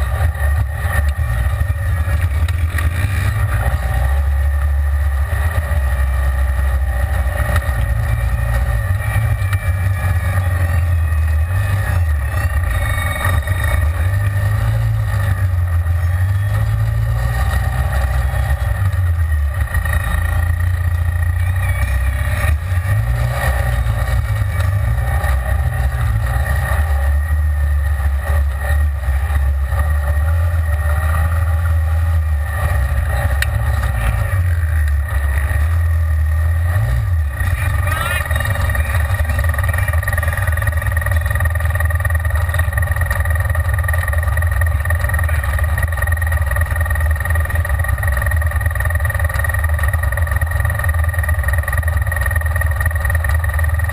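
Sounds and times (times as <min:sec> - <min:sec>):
vehicle engine running: 0:00.0 - 0:53.9.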